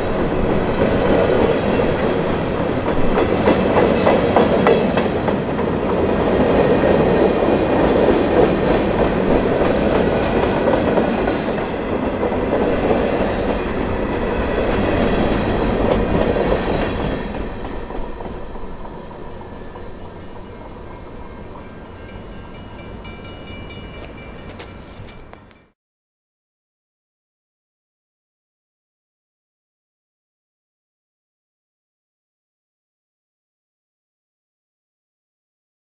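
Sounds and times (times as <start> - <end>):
freight train rolling by: 0.0 - 25.8.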